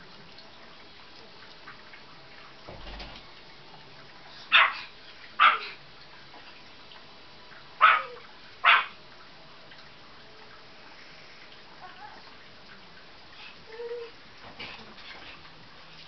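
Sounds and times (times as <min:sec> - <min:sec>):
dog barking: 0:04.5 - 0:05.8, 0:07.8 - 0:09.0.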